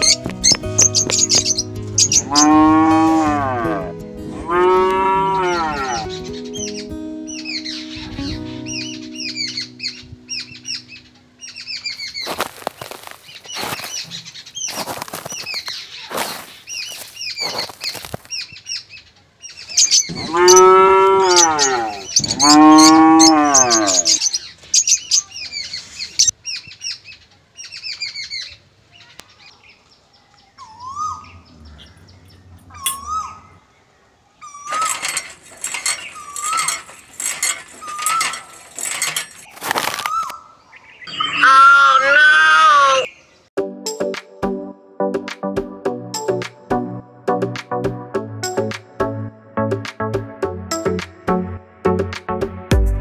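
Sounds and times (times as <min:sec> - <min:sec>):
birds chirping: 0:00.0 - 0:03.8, 0:04.4 - 0:43.5
cattle mooing: 0:02.2 - 0:06.2, 0:20.1 - 0:24.2, 0:41.1 - 0:43.1.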